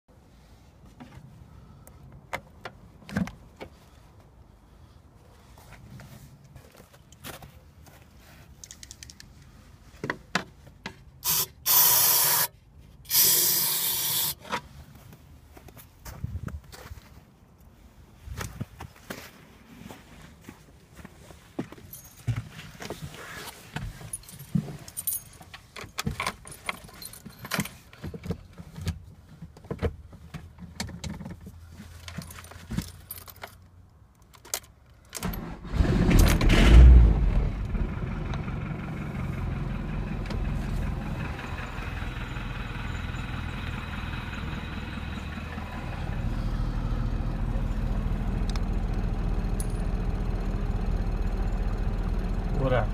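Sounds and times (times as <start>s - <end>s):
diesel engine starting and idling: 11.2s - 12.5s, 13.1s - 14.4s, 35.2s - 52.9s.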